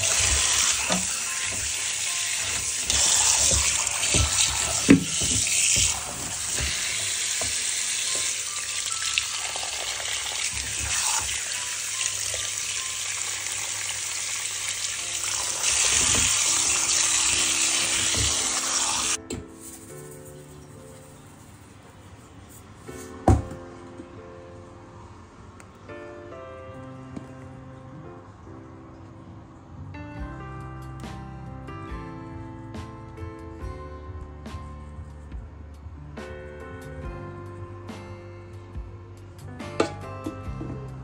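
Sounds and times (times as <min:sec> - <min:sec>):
music: 0:00.0 - 0:41.0
tap water splashing on chicken: 0:02.4 - 0:11.4, 0:15.6 - 0:19.2.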